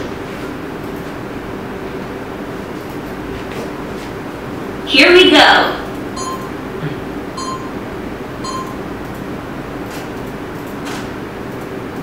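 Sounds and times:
short electronic beeps: 6.2s - 6.6s, 7.4s - 7.8s, 8.4s - 8.8s.

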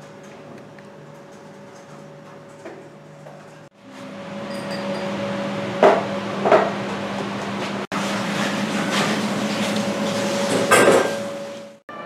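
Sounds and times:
electric hum of kitchen equipment: 0.0s - 12.0s.

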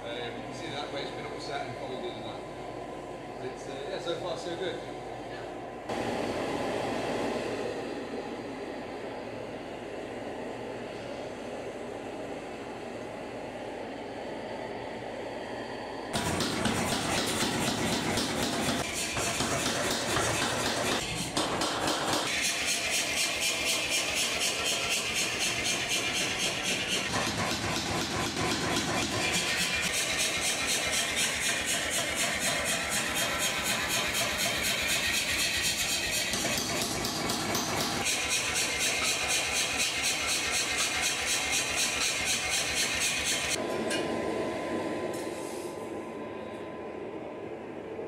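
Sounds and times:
steady machine hum: 0.0s - 48.0s
power hammer striking steel: 16.2s - 44.1s.

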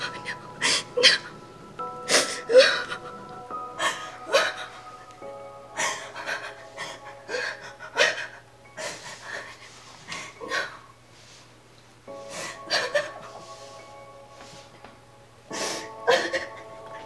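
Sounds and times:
woman sobbing: 0.0s - 1.4s, 2.1s - 5.0s, 5.7s - 10.9s, 12.3s - 13.4s, 15.5s - 17.0s
soft film score: 0.0s - 17.0s.

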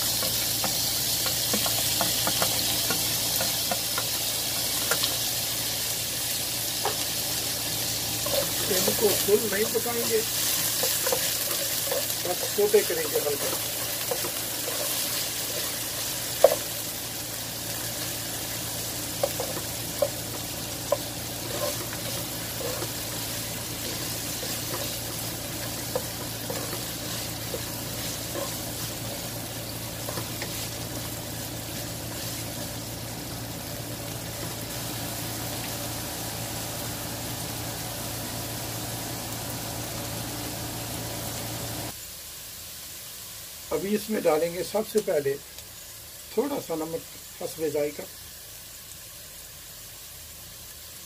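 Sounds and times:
vegetables sizzling in oil: 0.0s - 51.0s
spatula scraping a pan: 8.2s - 16.7s, 19.2s - 29.2s.

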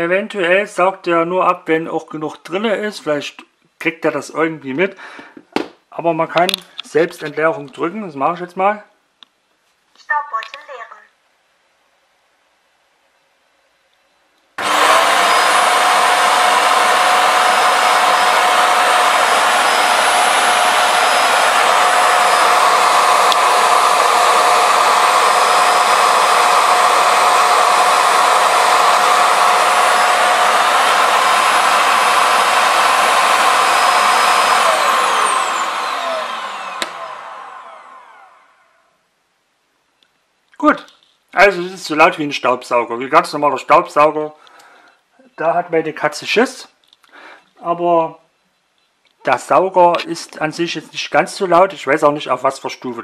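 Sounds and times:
suction motor whining: 14.6s - 38.8s.

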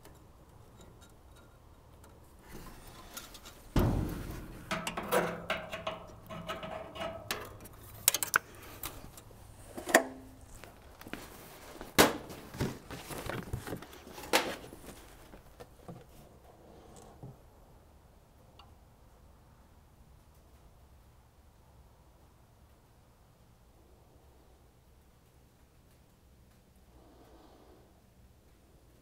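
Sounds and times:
metal parts scraping and rattling: 0.0s - 11.8s
heavy metal clunk: 2.6s - 7.6s
sharp metal knocks: 3.7s - 7.6s.

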